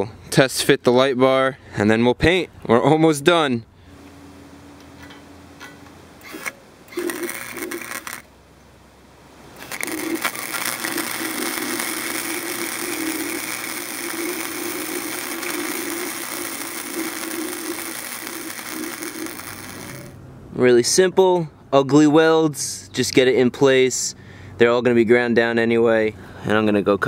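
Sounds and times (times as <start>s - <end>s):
arc welding crackling: 6.2s - 8.3s, 9.6s - 20.2s
tack welds crackling: 6.2s - 8.3s, 9.6s - 20.2s.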